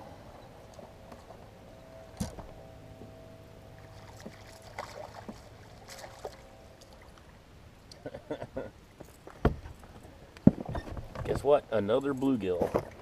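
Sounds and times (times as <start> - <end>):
faint steady hum: 0.0 - 13.0
small water splashes: 3.8 - 7.3.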